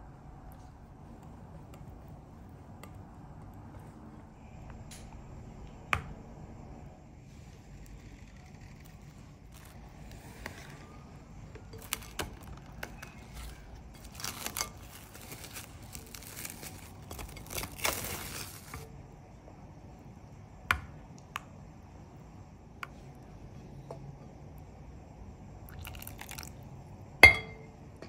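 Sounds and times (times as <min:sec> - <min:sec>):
plastic wrap crinkling: 0:07.9 - 0:18.9.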